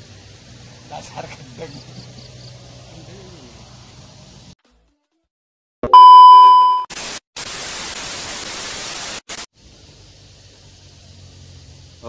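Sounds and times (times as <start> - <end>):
high test tone beep: 5.8 - 6.9
tv static hiss: 6.9 - 9.5.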